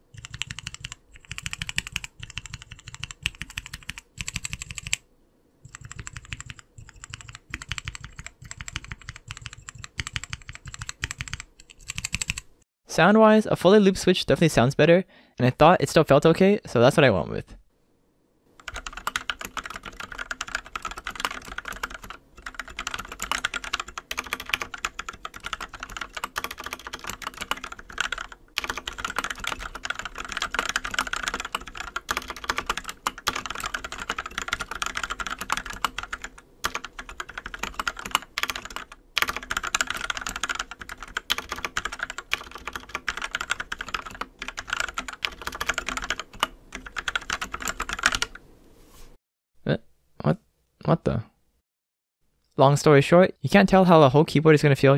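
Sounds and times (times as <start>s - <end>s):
mechanical keyboard typing: 0.1s - 5.0s, 5.7s - 12.5s, 18.6s - 48.4s.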